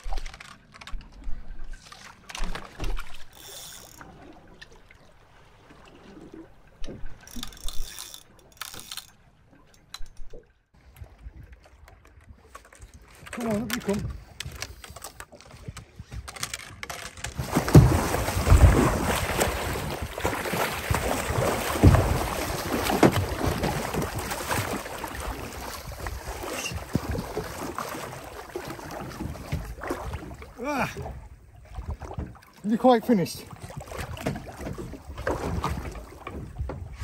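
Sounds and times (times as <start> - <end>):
shark splashing in water: 17.4 - 28.2.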